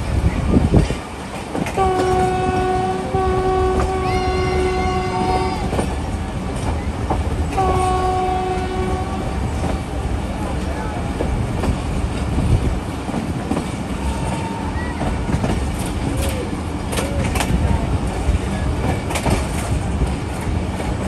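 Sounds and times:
moving train rumble: 0:00.0 - 0:21.0
diesel locomotive horn: 0:01.7 - 0:05.9, 0:07.5 - 0:09.9.

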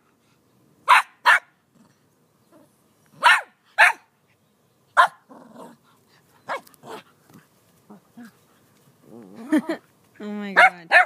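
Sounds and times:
small dog barking: 0:00.9 - 0:01.5, 0:03.2 - 0:04.1, 0:05.0 - 0:05.2, 0:10.6 - 0:11.0.

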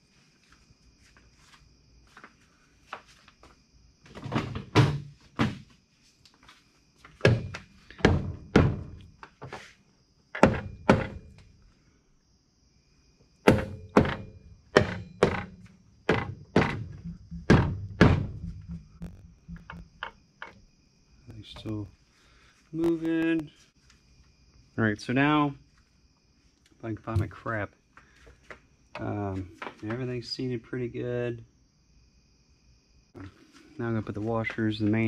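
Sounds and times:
dull thunks of blows: 0:07.2 - 0:09.0, 0:13.5 - 0:20.1.

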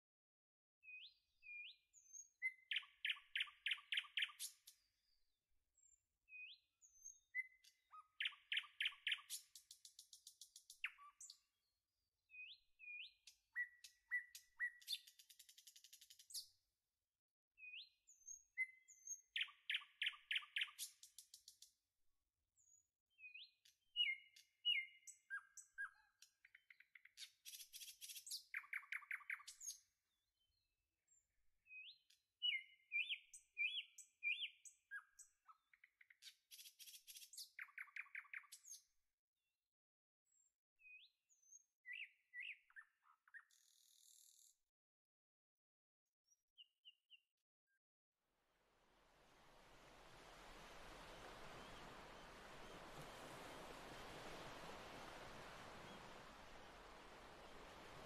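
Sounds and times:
songbird singing: 0:00.8 - 0:05.2, 0:05.8 - 0:11.5, 0:12.3 - 0:16.5, 0:17.6 - 0:21.1, 0:22.6 - 0:29.9, 0:31.7 - 0:38.9, 0:40.3 - 0:44.5, 0:49.3 - 0:58.0.

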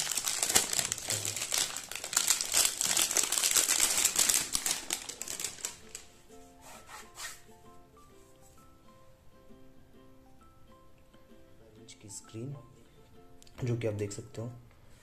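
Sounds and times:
plastic wrap crinkling: 0:00.0 - 0:06.2
soft music with plucked notes: 0:04.2 - 0:15.0.

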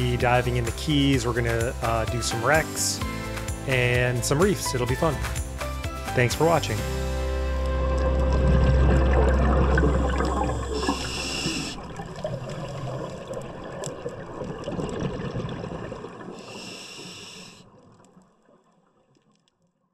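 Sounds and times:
exhaled bubbles gurgling: 0:07.7 - 0:18.5
hissing regulator breaths: 0:10.6 - 0:11.9, 0:16.4 - 0:17.7.

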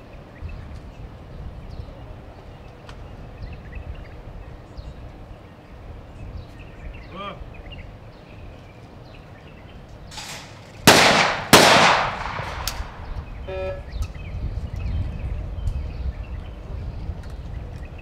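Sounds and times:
shotgun opening click: 0:10.1 - 0:13.0
shotgun shots with echo: 0:10.2 - 0:13.1.

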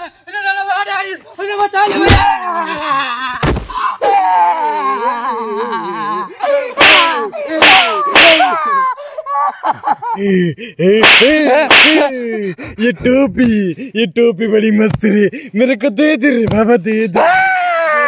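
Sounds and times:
people yelling and screaming: 0:00.4 - 0:09.6, 0:17.1 - 0:18.0
slap-like hit: 0:03.4 - 0:03.8, 0:06.8 - 0:08.6, 0:11.0 - 0:12.1.

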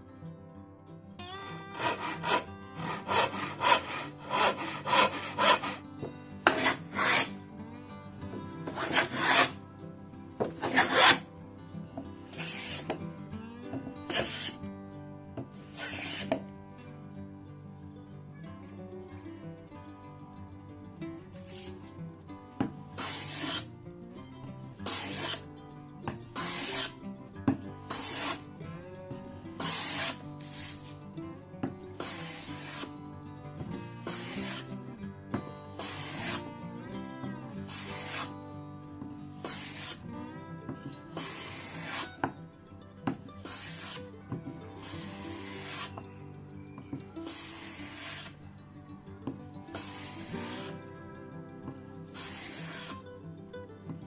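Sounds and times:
background music: 0:00.0 - 0:54.0
hand saw cutting wood: 0:01.7 - 0:07.4, 0:08.6 - 0:09.6, 0:10.4 - 0:11.3, 0:12.3 - 0:13.0, 0:14.1 - 0:14.6, 0:15.6 - 0:16.4, 0:22.9 - 0:23.7, 0:24.8 - 0:25.4, 0:26.4 - 0:27.0, 0:27.9 - 0:28.4, 0:29.5 - 0:31.0, 0:32.0 - 0:33.0, 0:34.0 - 0:34.8, 0:35.7 - 0:36.6, 0:37.6 - 0:38.4, 0:39.4 - 0:40.0, 0:40.7 - 0:42.4, 0:43.1 - 0:46.1, 0:47.2 - 0:48.4, 0:49.7 - 0:50.8, 0:52.1 - 0:53.0.

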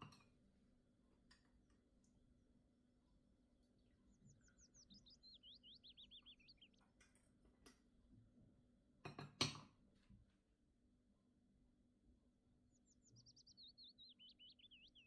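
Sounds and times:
small bird trilling: 0:04.3 - 0:06.8, 0:12.8 - 0:15.0.

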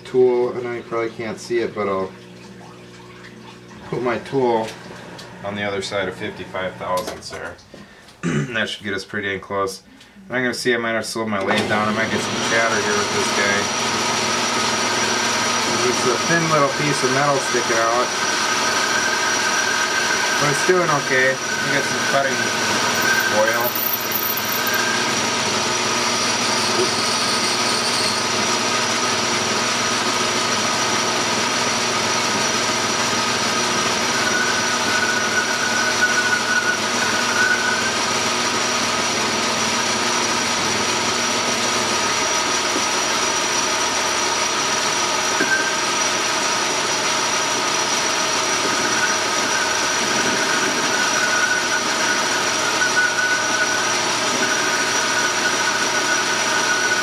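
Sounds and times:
metal lathe running: 0:11.5 - 0:57.0
high wavering squeal from cutting: 0:21.4 - 0:25.1, 0:26.0 - 0:28.5, 0:33.9 - 0:38.1, 0:48.1 - 0:57.0.

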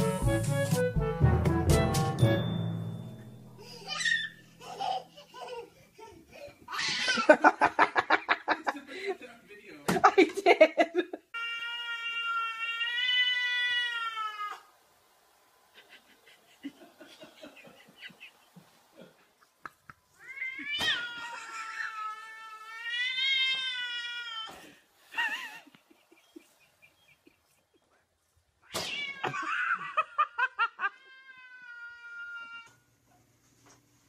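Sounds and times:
cat yowling: 0:11.4 - 0:14.7, 0:20.2 - 0:24.5, 0:28.7 - 0:29.8, 0:30.8 - 0:32.8.

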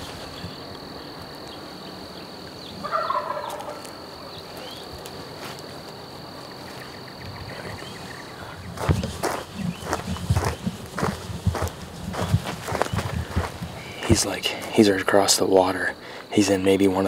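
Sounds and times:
turkey gobbling: 0:02.8 - 0:03.9
footsteps on dirt road: 0:03.2 - 0:14.9.

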